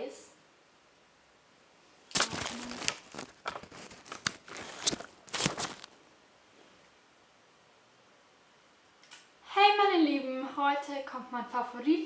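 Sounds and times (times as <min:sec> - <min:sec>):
camera handling noise: 0:02.1 - 0:06.0.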